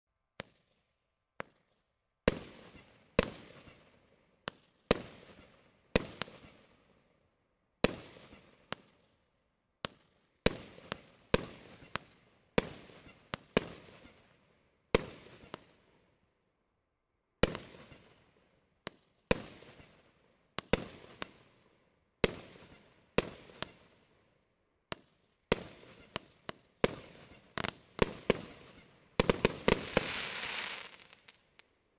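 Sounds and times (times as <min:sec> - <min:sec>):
fireworks bangs: 0:29.2 - 0:31.6.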